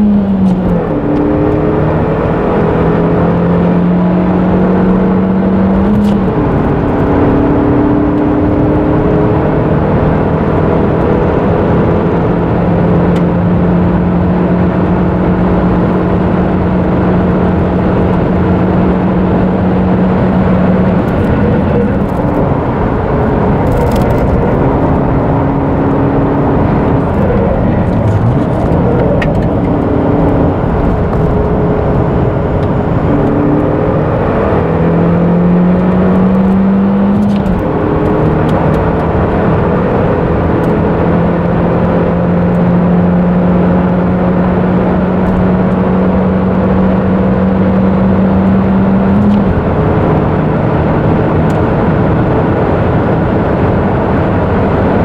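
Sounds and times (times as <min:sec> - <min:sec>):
wind noise: 0:00.0 - 0:42.6
car engine accelerating: 0:00.0 - 0:55.0.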